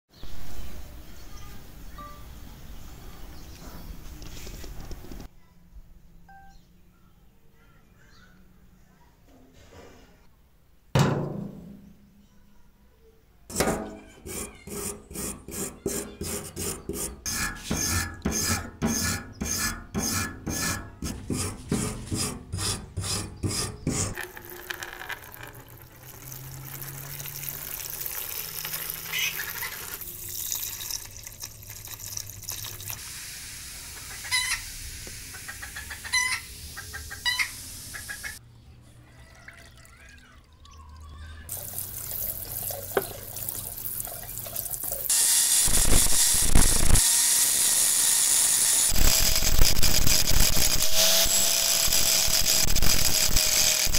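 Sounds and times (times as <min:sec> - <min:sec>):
sharp knock: 0:11.0 - 0:12.0
regular strokes: 0:13.5 - 0:25.1
water running into plastic tub: 0:24.2 - 0:33.0, 0:41.5 - 0:45.1.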